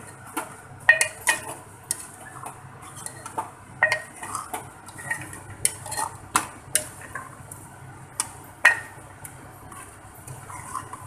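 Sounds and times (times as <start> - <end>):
spoon scraping and clinking metal pot: 0.9 - 2.1, 2.9 - 7.3, 9.8 - 11.0.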